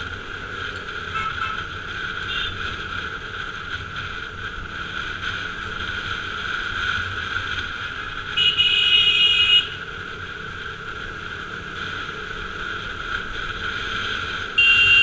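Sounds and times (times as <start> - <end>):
motorcycle running: 0.0 - 15.0
vehicle horn honking: 1.1 - 1.6, 2.3 - 2.5, 8.4 - 9.8, 14.6 - 15.0.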